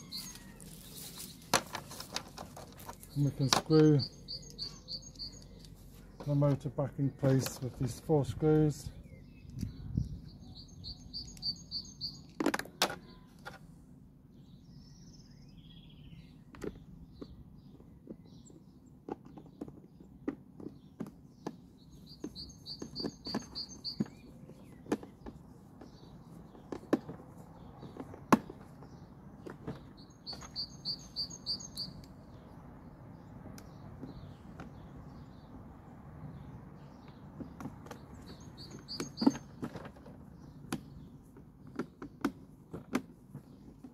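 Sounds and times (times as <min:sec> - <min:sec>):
songbird trilling: 0:00.0 - 0:01.4, 0:03.0 - 0:06.3, 0:09.0 - 0:12.4, 0:21.8 - 0:24.9, 0:29.8 - 0:32.6, 0:37.9 - 0:39.6.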